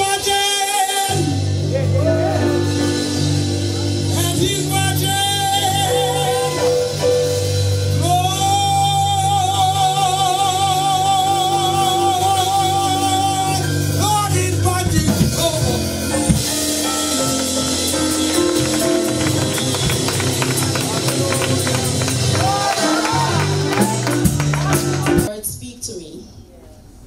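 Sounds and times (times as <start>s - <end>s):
live band with drums: 0.0s - 25.6s
person singing with vibrato: 4.1s - 16.3s.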